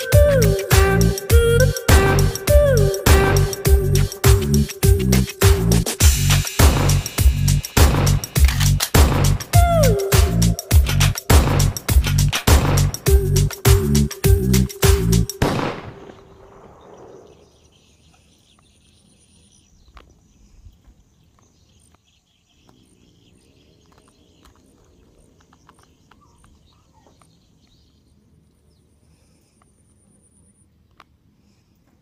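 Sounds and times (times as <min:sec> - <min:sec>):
music with strong beat: 0:00.0 - 0:15.4
thin high ticking: 0:00.0 - 0:15.5
small clicks: 0:08.4 - 0:09.0.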